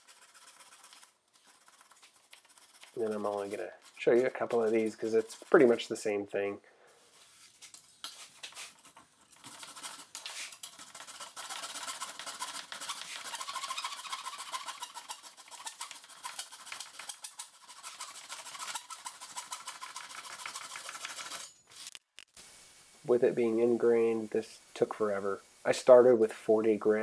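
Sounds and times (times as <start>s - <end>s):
metal blade scraping wood: 1.6s - 6.5s, 8.2s - 22.0s.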